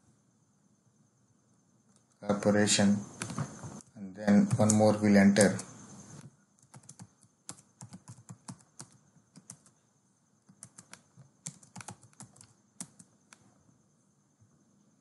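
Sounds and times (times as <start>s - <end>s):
typing on keyboard: 4.2s - 5.7s, 6.6s - 9.8s, 10.4s - 13.4s.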